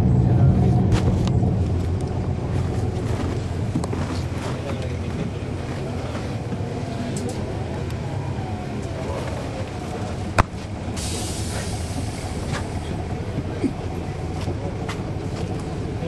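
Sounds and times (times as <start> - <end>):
bus diesel engine running: 0.0 - 16.0
air hiss: 11.0 - 12.8.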